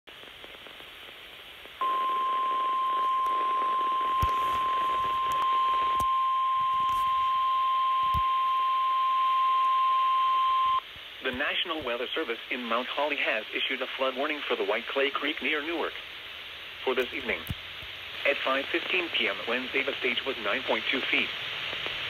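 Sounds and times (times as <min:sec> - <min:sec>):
radio static hiss: 0:00.1 - 0:22.0
long steady alarm beep: 0:01.8 - 0:10.8.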